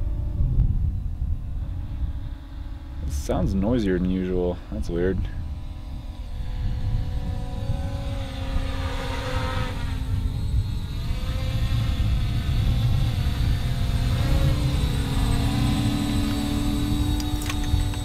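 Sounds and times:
quadcopter propellers whining: 0:00.0 - 0:18.0
low rumble: 0:09.5 - 0:18.0.

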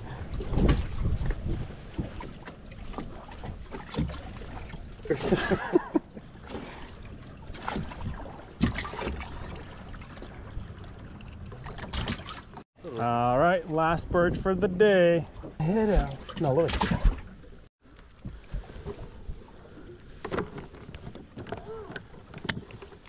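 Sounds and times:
wind buffeting microphone: 0:00.0 - 0:02.2
knocks and splashes of fish: 0:00.0 - 0:12.6, 0:15.4 - 0:23.0
water lapping at boat: 0:00.0 - 0:23.0.

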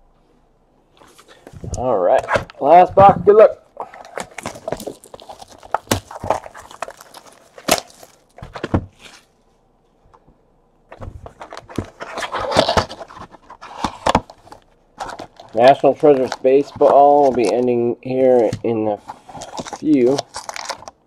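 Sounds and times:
cardboard scraping and rustling: 0:04.0 - 0:09.3, 0:10.9 - 0:17.7, 0:18.3 - 0:20.9.

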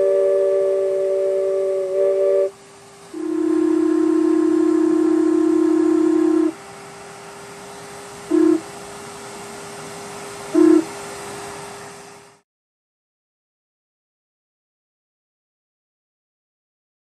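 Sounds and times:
model train horn blowing: 0:00.0 - 0:06.6, 0:08.3 - 0:08.7, 0:10.5 - 0:10.9
faint steady hum: 0:00.0 - 0:12.4.

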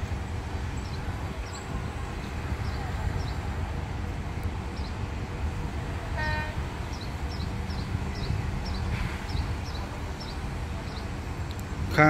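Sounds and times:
birds chirping: 0:00.1 - 0:03.9, 0:04.6 - 0:05.4, 0:06.1 - 0:12.0
horn toot: 0:06.2 - 0:06.7.

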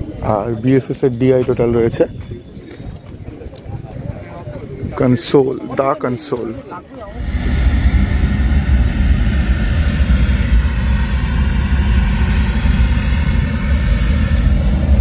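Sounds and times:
rushing test noise over speakers: 0:07.0 - 0:15.0.

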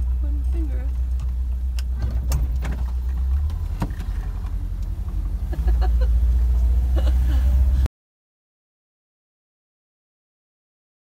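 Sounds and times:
van engine and road rumble: 0:00.0 - 0:07.9.

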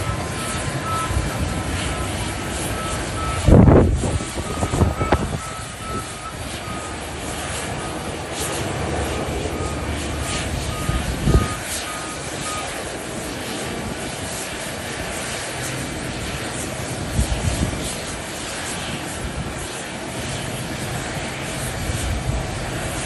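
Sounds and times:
faint repeating beep: 0:00.0 - 0:01.3
jet engines whooshing: 0:00.0 - 0:23.0.

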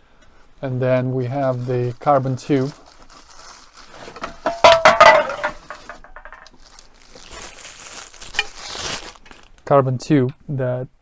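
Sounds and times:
soft rustling hiss: 0:00.0 - 0:10.9
metal tools clattering: 0:04.2 - 0:06.5.

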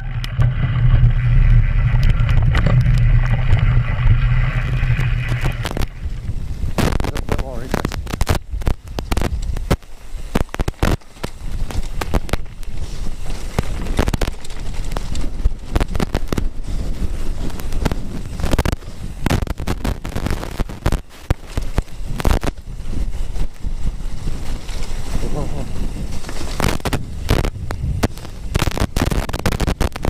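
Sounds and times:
wind buffeting microphone: 0:00.0 - 0:30.0
mountain bike rattling and knocking: 0:08.8 - 0:15.8, 0:21.1 - 0:27.7.

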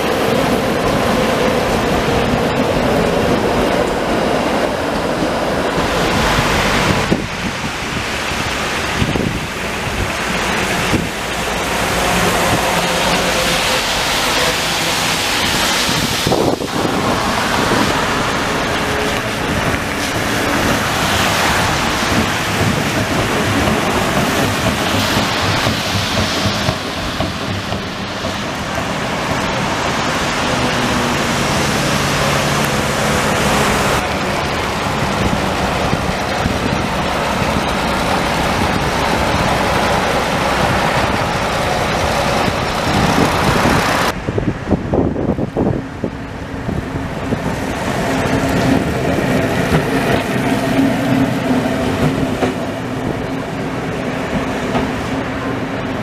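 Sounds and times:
tyres hissing on wet road: 0:00.0 - 0:56.0
vehicle engines: 0:00.0 - 0:56.0
wind noise on microphone: 0:00.0 - 0:56.0.

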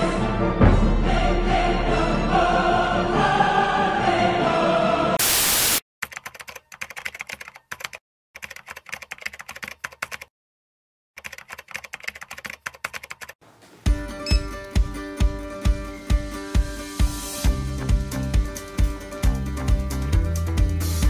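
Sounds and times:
orchestral theme music: 0:00.0 - 0:05.2
burst of loud static: 0:05.2 - 0:05.8
rapid keyboard typing: 0:06.0 - 0:10.3, 0:11.2 - 0:13.4.

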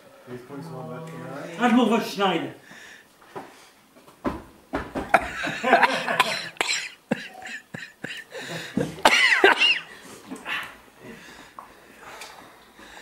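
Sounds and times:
person coughing: 0:05.6 - 0:09.9.

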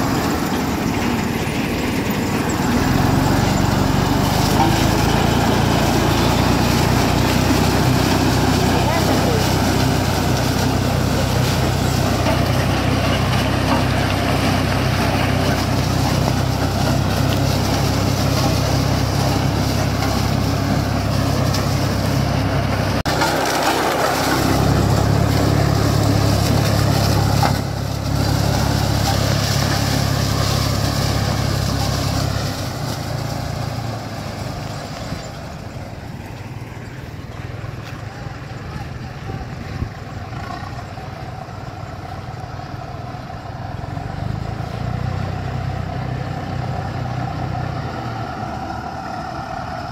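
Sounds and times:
tractor diesel engine drone: 0:00.0 - 0:49.9
forage harvester chopping maize: 0:02.7 - 0:35.0.

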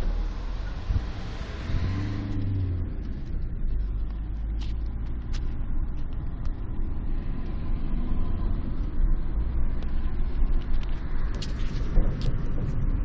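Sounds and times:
camera handling rumble: 0:09.8 - 0:12.8.

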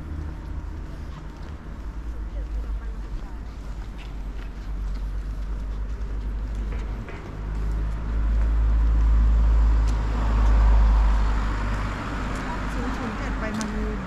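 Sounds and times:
car engine rumble: 0:00.0 - 0:14.0.

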